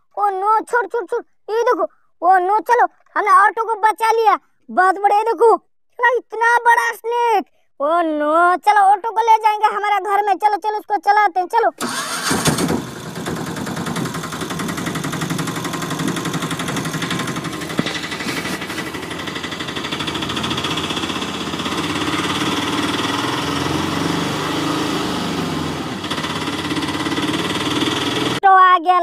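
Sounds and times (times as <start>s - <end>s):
imitation engine putter: 11.8s - 28.4s.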